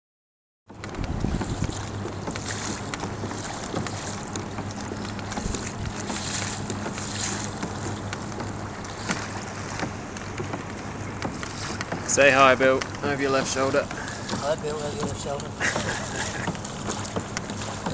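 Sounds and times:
water splashing around kayak: 0.7 - 17.9
wind on microphone: 0.8 - 4.1, 5.0 - 7.5.

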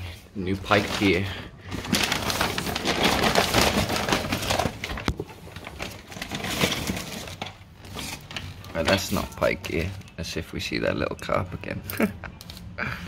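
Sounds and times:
paper bag rustling: 0.0 - 10.3.

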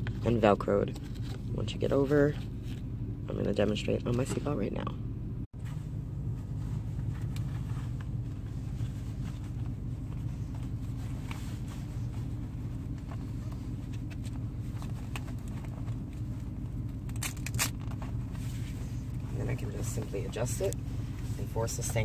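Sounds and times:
car engine idling: 0.0 - 22.0
scraping and handling noises: 5.6 - 22.0.

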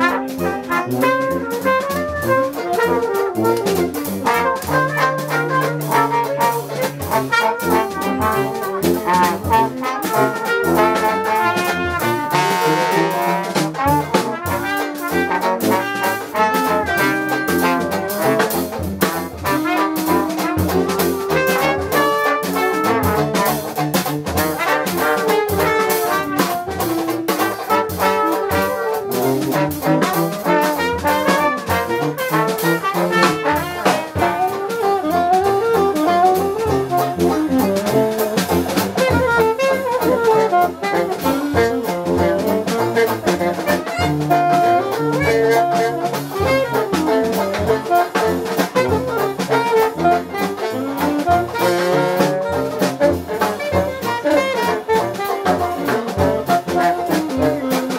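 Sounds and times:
drum kit beat: 0.0 - 57.9
saxophone: 0.0 - 57.9
trombone: 0.0 - 57.9
trumpet: 0.0 - 57.9
tuba: 0.0 - 57.9.

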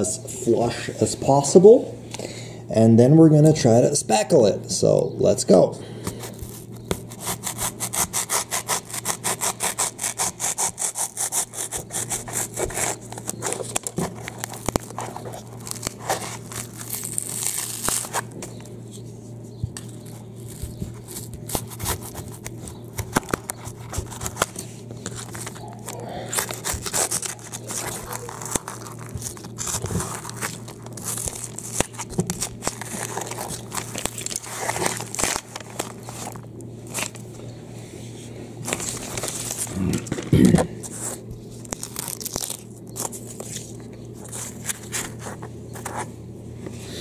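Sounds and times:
knife sawing through foam: 7.1 - 13.0.

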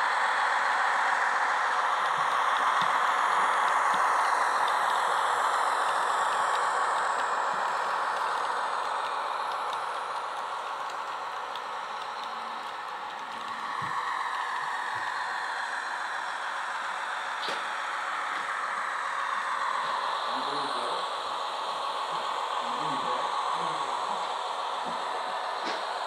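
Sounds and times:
model train rattling on track: 0.0 - 16.3
diesel engine sound from small speaker: 19.8 - 25.9.

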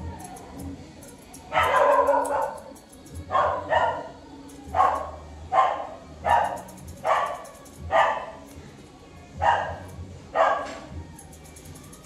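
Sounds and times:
dog barking: 1.5 - 8.5, 9.4 - 10.9.

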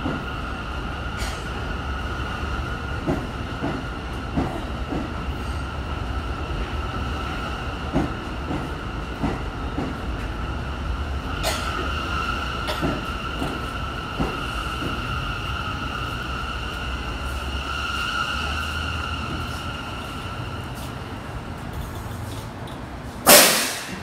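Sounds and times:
subway train rolling to a stop: 0.0 - 24.0
air brakes hissing: 23.2 - 24.0.

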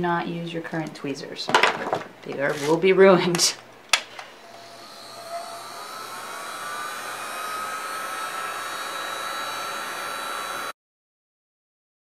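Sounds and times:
heat gun blowing air: 4.1 - 10.7.

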